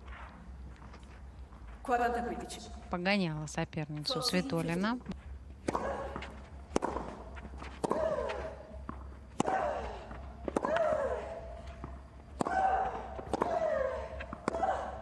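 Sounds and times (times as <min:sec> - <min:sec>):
tennis ball hit by rackets: 0:05.6 - 0:15.0.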